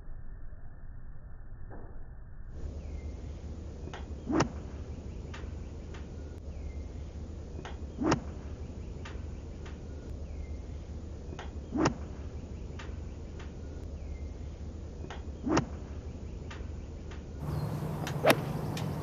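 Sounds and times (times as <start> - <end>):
low steady hum: 2.6 - 19.0
faint ticks: 16.5 - 19.0
golf club striking ball: 17.4 - 19.0.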